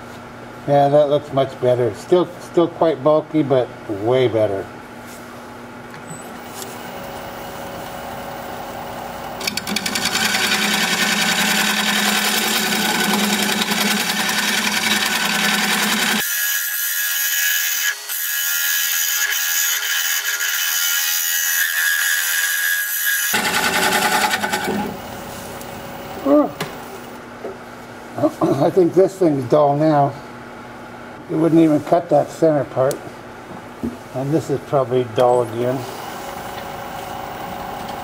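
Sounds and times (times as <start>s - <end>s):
lathe tool cutting wood: 9.4s - 25.0s.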